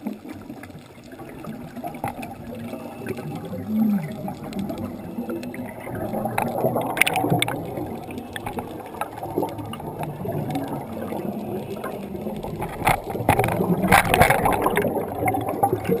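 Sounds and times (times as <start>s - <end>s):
bubbles gurgling underwater: 0.0s - 16.0s.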